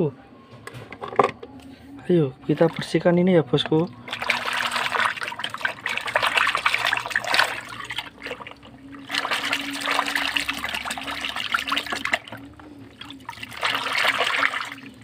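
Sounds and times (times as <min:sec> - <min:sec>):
water sloshing in plastic tub: 0:02.5 - 0:03.0, 0:03.6 - 0:15.0.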